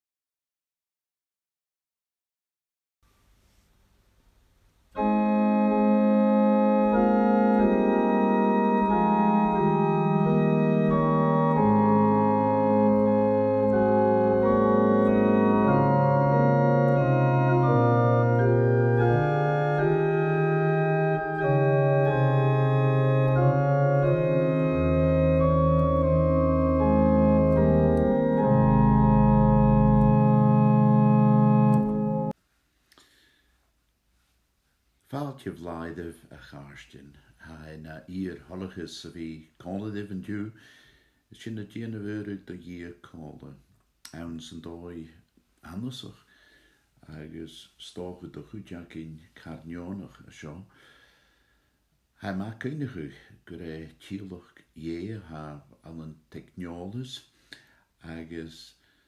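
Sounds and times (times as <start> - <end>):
organ playing slow chords: 4.9 - 32.4.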